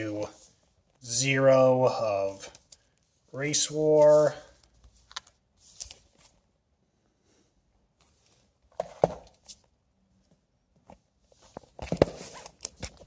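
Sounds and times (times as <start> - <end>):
comic books rustling and tapping: 8.0 - 13.0.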